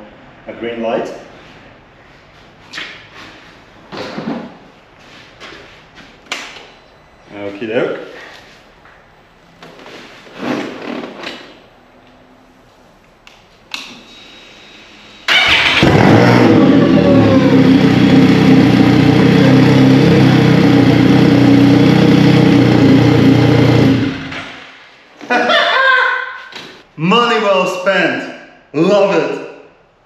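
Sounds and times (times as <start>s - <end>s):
engine starting and idling: 15.2s - 24.6s.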